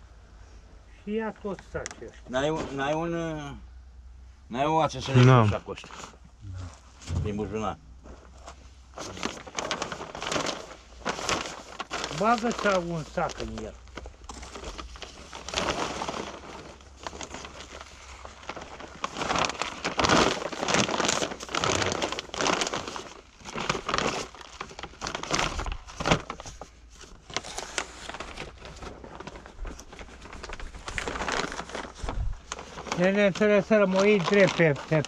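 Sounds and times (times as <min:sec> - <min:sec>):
plastic sacks rustling: 0:05.0 - 0:35.0.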